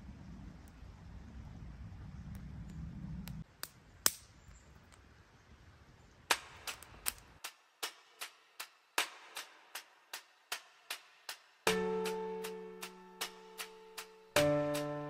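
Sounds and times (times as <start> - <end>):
sharp percussive clicks: 6.3 - 9.8.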